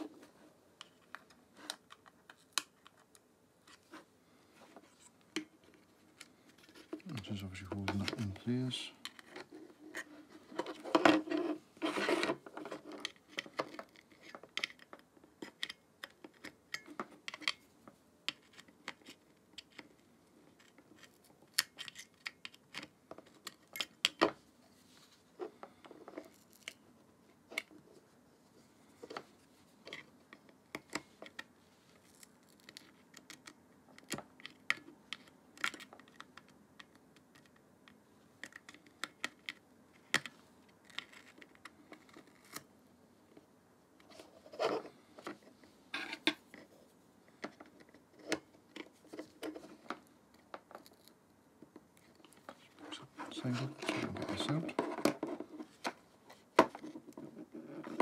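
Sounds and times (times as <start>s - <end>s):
handling of plastic and metal parts: 0.0s - 17.7s, 44.0s - 58.0s.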